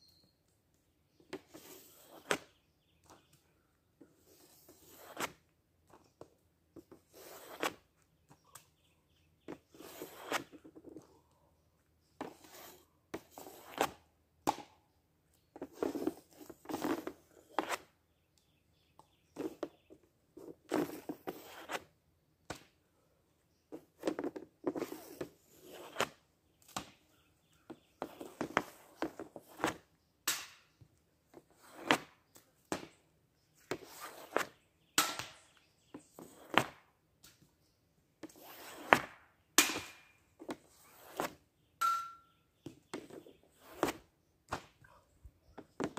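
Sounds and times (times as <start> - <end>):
pucks scraping: 1.2 - 3.4, 4.0 - 8.4, 9.4 - 11.2, 12.2 - 14.1, 15.6 - 18.0, 19.3 - 21.9, 23.7 - 27.0, 27.7 - 30.5, 31.3 - 33.0, 33.6 - 36.8, 38.2 - 41.4, 42.6 - 44.8
hockey stick hitting pucks: 38.9 - 40.1.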